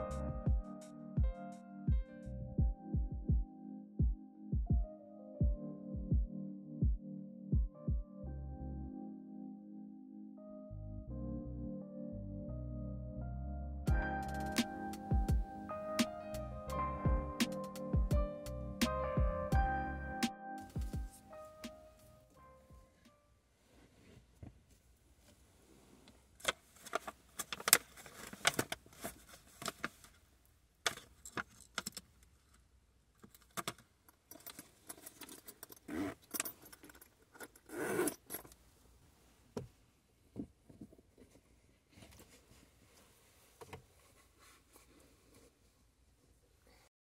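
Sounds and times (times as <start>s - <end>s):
small metallic jingling: 33.3s - 38.6s
clothing rustling: 37.7s - 46.9s.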